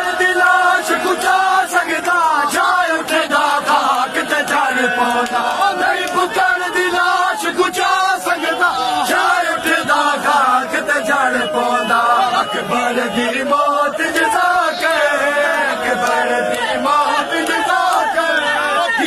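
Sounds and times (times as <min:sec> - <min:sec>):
crowd of men chanting: 0:00.0 - 0:19.0
person reciting into a microphone: 0:00.0 - 0:19.0
hands slapping chests: 0:03.4 - 0:06.5, 0:14.8 - 0:18.1.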